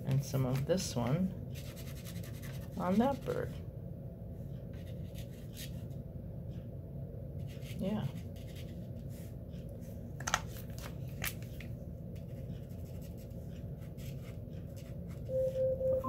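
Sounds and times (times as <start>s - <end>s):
marker scratching on paper: 1.6s - 3.4s
electronic timer tone: 15.3s - 16.0s.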